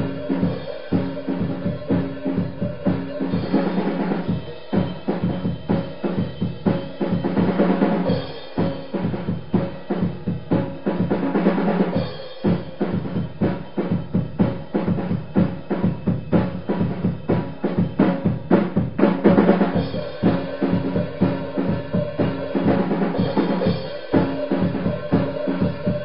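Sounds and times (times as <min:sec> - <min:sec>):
drum kit fast beat: 0:00.0 - 0:26.0
held low notes: 0:13.0 - 0:26.0.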